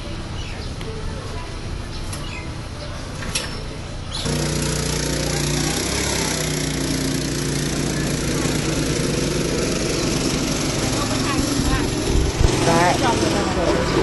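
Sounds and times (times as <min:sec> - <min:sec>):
go-kart engine running: 0:04.2 - 0:14.0.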